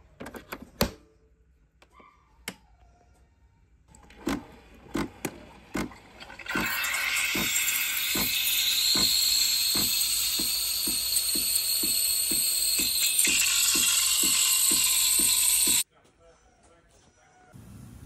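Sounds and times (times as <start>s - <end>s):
steam wand frothing milk hiss: 6.5s - 15.8s.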